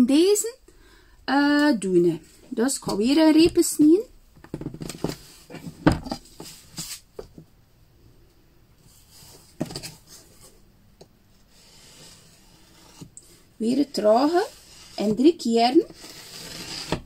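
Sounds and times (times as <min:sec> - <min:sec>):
knife scraping through clay: 0:11.5 - 0:15.2, 0:15.8 - 0:17.0.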